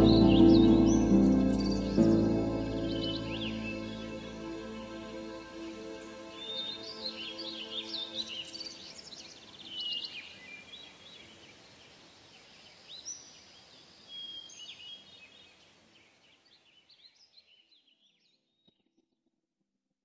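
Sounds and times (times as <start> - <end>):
birdsong chirps and trills: 0.0 - 4.8
held music notes: 0.0 - 6.6
faint hiss: 0.0 - 17.0.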